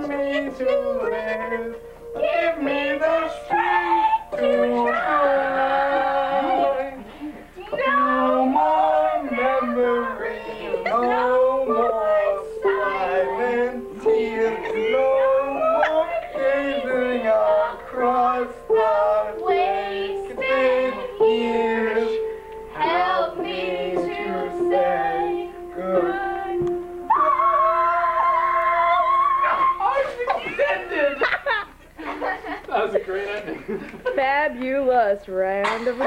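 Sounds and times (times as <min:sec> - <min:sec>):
man singing: 0:00.0 - 0:07.0, 0:07.8 - 0:26.6
upright piano chords: 0:00.0 - 0:31.0
woman singing: 0:07.6 - 0:17.9.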